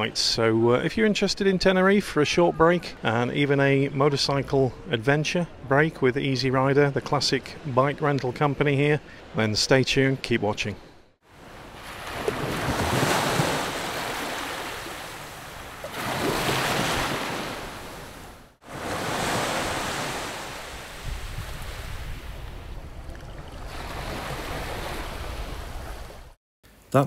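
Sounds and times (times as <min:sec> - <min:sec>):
sea waves breaking on beach: 0:11.3 - 0:26.4
wind buffeting microphone: 0:20.8 - 0:26.3.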